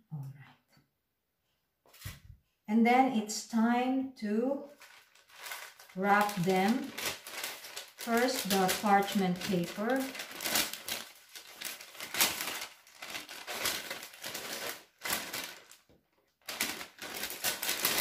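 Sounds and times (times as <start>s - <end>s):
parchment paper rustling: 4.6s - 18.0s.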